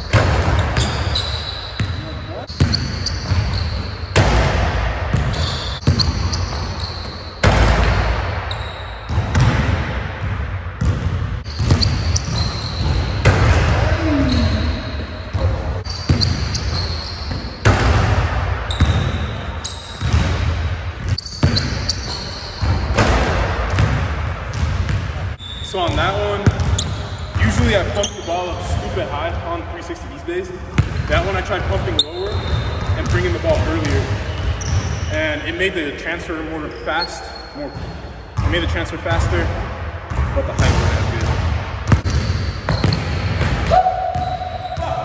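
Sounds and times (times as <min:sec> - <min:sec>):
basketball bouncing on hardwood: 0:26.4 - 0:26.9, 0:40.1 - 0:44.3.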